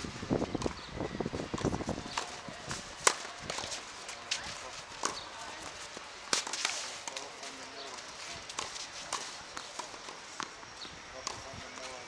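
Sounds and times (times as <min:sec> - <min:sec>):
tennis ball bounces: 0:01.5 - 0:07.3, 0:07.9 - 0:10.6
tennis racket strikes: 0:06.3 - 0:07.2.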